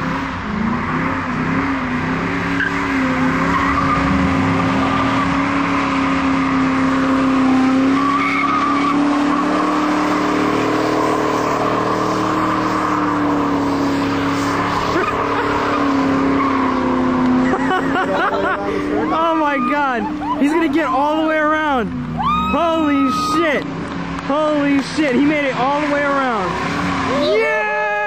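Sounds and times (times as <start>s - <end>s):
car engine revving high: 0.0s - 28.0s
tyres squealing on pavement: 0.0s - 28.0s.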